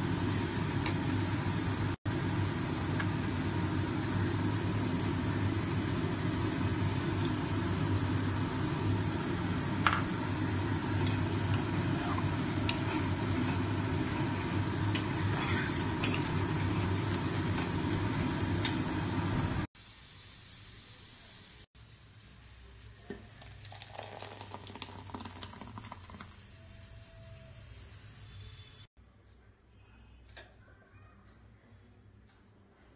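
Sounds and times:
chutney sizzling in a pot: 0.0s - 28.9s
metal spoon scraping a pot: 15.0s - 16.4s.

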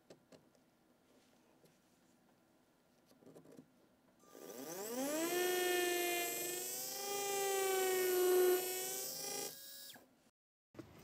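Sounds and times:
dental drill whining: 4.3s - 10.0s.

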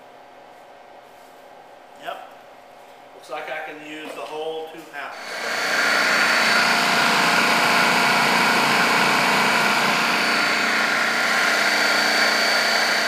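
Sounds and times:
electric blender running: 5.1s - 13.0s.

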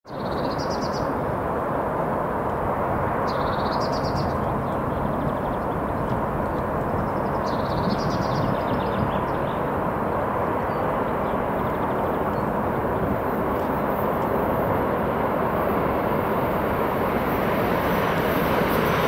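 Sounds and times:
songbird trilling: 0.1s - 1.1s, 3.3s - 5.8s
distant traffic rumble: 0.1s - 19.0s.

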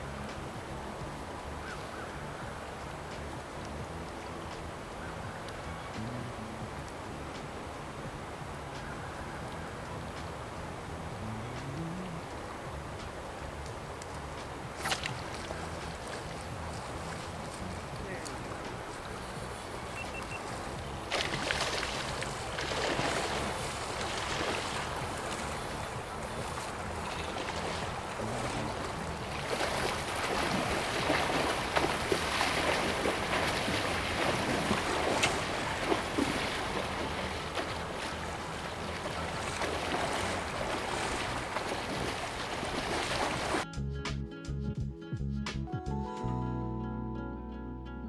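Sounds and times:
creek rushing: 0.0s - 43.6s
wind buffeting microphone: 2.1s - 43.6s
splashing from wading: 13.3s - 43.6s.

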